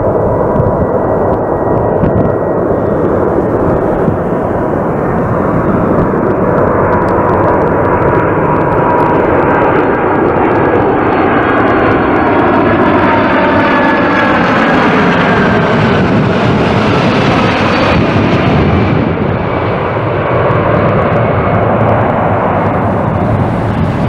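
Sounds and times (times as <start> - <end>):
thin steady whine: 0.0 - 15.8
jet engines roaring: 0.0 - 24.0.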